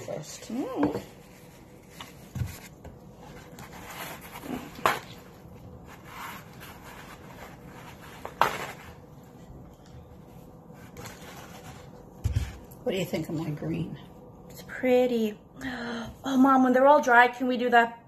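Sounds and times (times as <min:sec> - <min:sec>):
paper towel rustling: 0:00.0 - 0:12.6.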